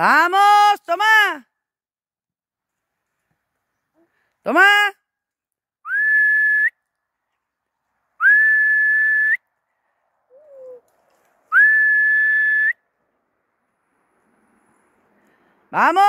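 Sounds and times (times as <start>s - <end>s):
person whistling: 5.9s - 6.8s, 8.2s - 9.4s, 10.3s - 10.8s, 11.5s - 12.8s.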